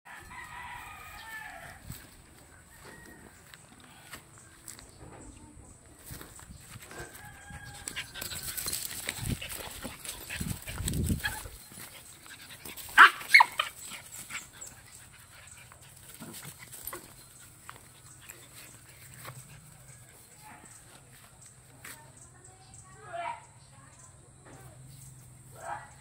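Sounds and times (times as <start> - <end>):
dogs scuffling on grass: 0.1 - 4.8, 5.9 - 22.2
dog barks: 12.9 - 13.7, 25.6 - 26.0.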